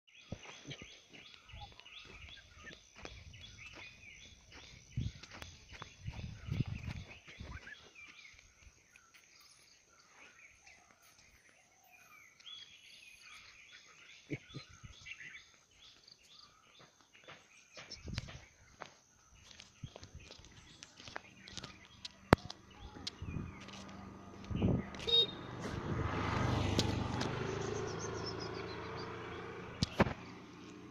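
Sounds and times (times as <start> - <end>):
birds chirping: 0.1 - 30.9.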